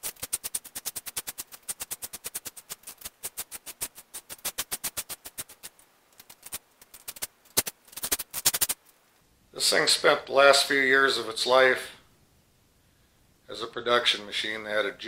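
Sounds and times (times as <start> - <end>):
rapid ratcheting clicks: 0.0 - 8.8.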